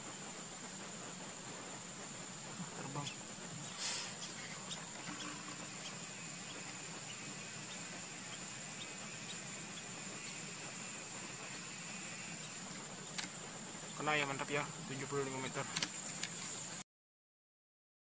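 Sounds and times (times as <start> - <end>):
high-pitched insect drone: 1.8 - 16.8
burst of noise: 3.7 - 13.2.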